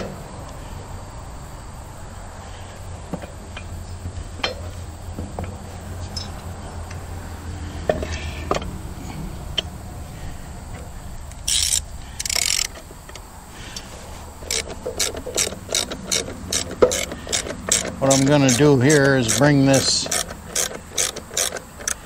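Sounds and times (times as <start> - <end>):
metal knocks: 3.1 - 6.5, 14.4 - 21.6
ratchet clicking: 11.3 - 22.0
short rasping bursts: 14.4 - 22.0.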